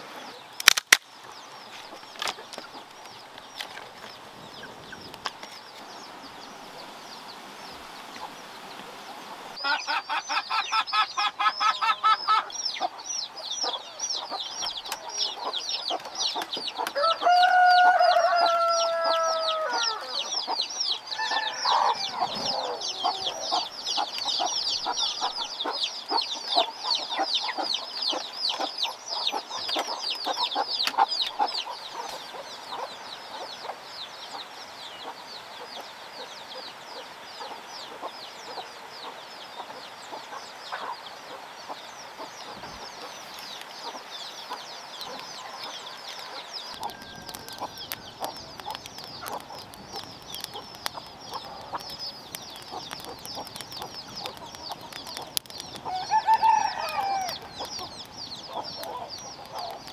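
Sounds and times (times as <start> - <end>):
wood fire crackling: 0.0 - 7.0, 14.0 - 33.3, 42.3 - 59.9
chickens clucking: 1.2 - 59.9.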